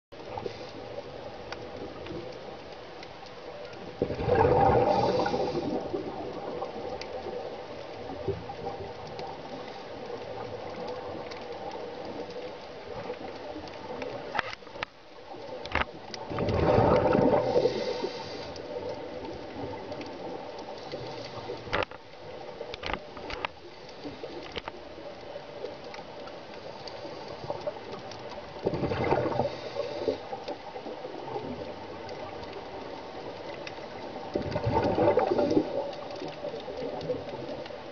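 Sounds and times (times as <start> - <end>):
underwater hiss: 0.2 - 1.8, 4.1 - 8.8, 16.4 - 21.8, 25.6 - 37.0
diver's bubbles gurgling underwater: 3.8 - 14.4, 16.1 - 21.8, 27.1 - 37.9.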